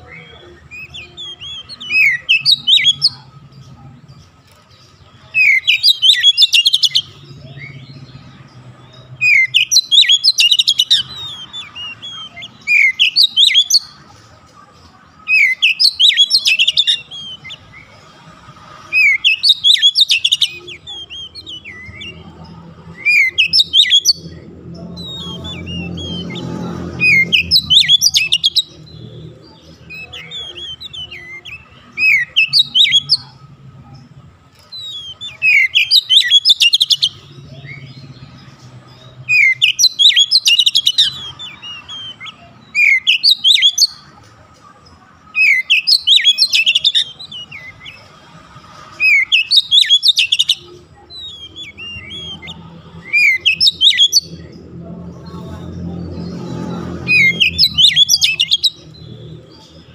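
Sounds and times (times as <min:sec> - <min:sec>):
bird singing whistled phrases: 0:05.4 - 0:07.8, 0:09.2 - 0:13.9, 0:15.3 - 0:17.6, 0:19.0 - 0:22.2, 0:23.0 - 0:24.3, 0:27.0 - 0:28.8, 0:29.9 - 0:33.3, 0:34.7 - 0:37.9, 0:39.3 - 0:44.0, 0:45.4 - 0:48.0, 0:49.0 - 0:54.4, 0:57.1 - 0:58.8.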